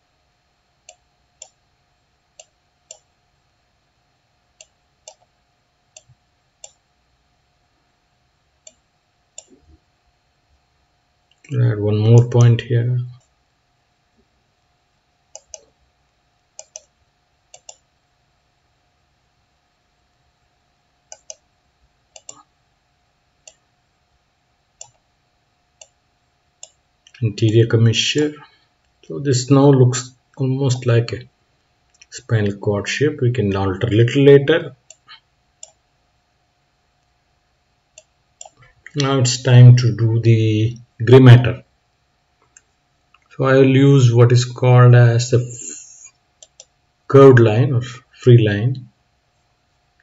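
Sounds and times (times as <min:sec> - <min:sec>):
faint steady hum: 0:00.0 - 0:50.0.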